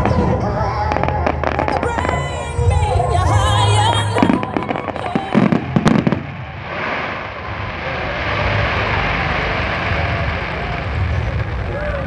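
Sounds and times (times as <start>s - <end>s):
fireworks bangs: 0.0s - 12.0s
steady hiss: 3.3s - 12.0s.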